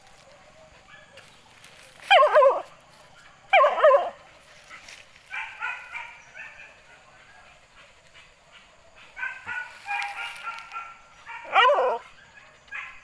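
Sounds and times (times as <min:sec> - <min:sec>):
dog yelping barks: 0:02.1 - 0:02.7, 0:03.3 - 0:04.2, 0:05.3 - 0:06.8, 0:09.1 - 0:13.0.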